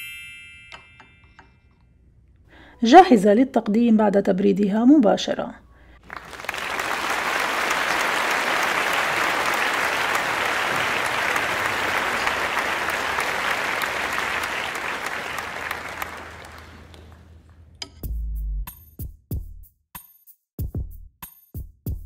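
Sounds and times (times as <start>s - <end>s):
many hands clapping: 6.0s - 17.6s.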